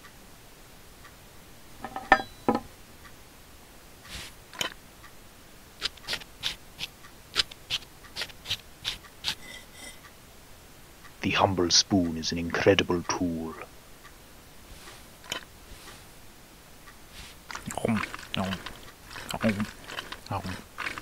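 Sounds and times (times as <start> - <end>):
cutlery clinking on plate: 1.8 - 2.7, 9.3 - 10.0
knife sawing steak: 5.8 - 6.6, 7.4 - 9.6.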